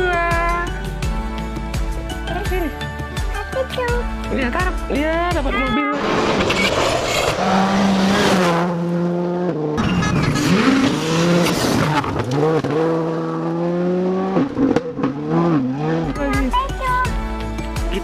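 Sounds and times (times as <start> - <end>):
rally car engines at high revs: 5.9 - 16.5
tyres on gravel hiss: 6.0 - 7.7.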